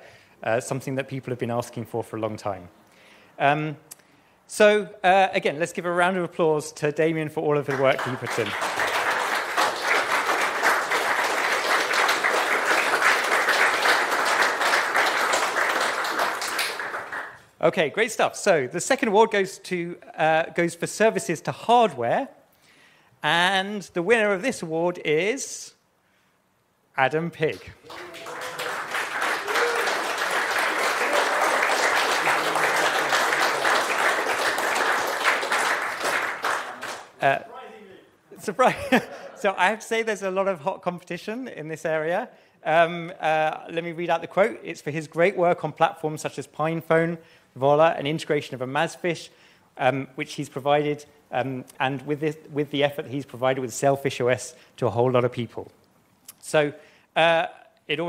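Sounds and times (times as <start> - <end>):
audience clapping: 7.6 - 17.5, 27.4 - 37.2.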